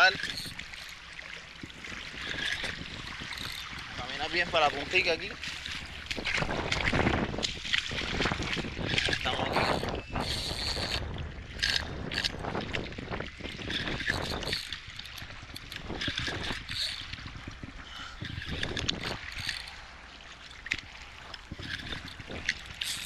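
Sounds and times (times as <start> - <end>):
fishing reel cranking: 0.0 - 12.8, 13.5 - 19.8, 20.7 - 23.0
water sloshing and splashing: 0.0 - 23.0
wind on microphone: 1.6 - 20.0, 20.8 - 23.0.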